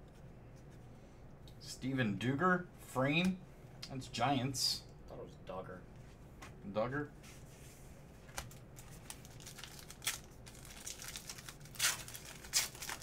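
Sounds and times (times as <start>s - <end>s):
wrapper crinkling: 8.4s - 13.0s
wrapper tearing open: 8.4s - 13.0s.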